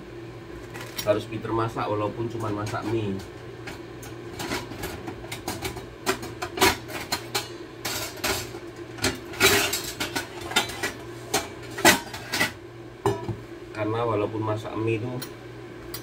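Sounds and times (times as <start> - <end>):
steady low hum: 0.0 - 16.0
dishes and utensils clinking: 4.4 - 13.4.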